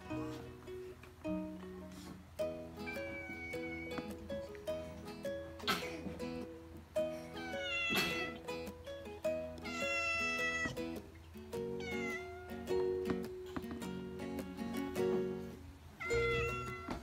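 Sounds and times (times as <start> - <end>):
plucked-string background music: 0.0 - 17.0
cat meowing: 2.8 - 4.1, 7.4 - 8.4, 9.6 - 10.8, 11.8 - 12.7, 16.0 - 17.0.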